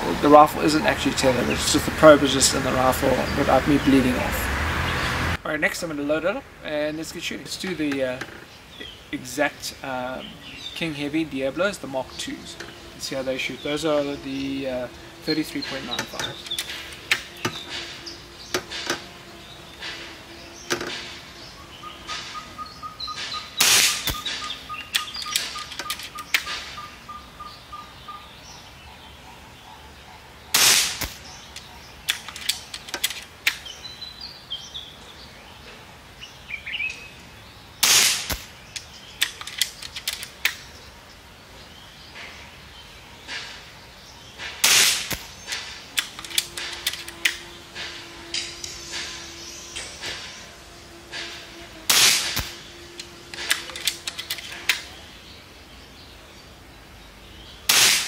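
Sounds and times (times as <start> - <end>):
air rifle shots: 23.2 - 26.8, 30.5 - 31.4, 37.8 - 38.6, 44.4 - 47.0, 51.2 - 54.9, 57.7 - 58.0
rifle cocking clicks: 37.8 - 40.6, 46.0 - 47.4, 51.9 - 54.9.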